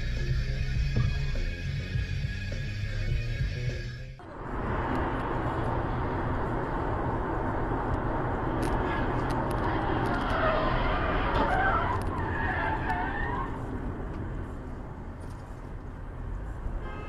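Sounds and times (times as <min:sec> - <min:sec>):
car road and engine noise: 0:00.0 - 0:17.0
tyres squealing: 0:08.6 - 0:13.6.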